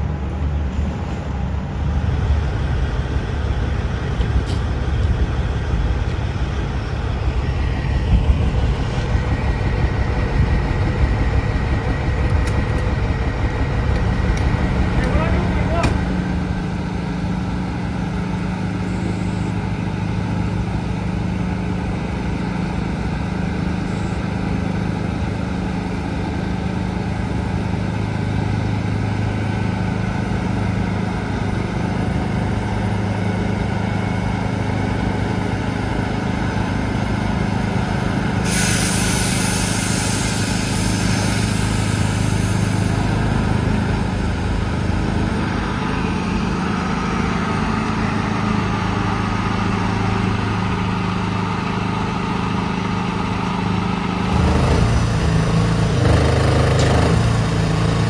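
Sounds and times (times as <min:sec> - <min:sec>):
truck diesel engine running: 0:00.0 - 0:58.0
air brakes hissing: 0:38.3 - 0:43.6.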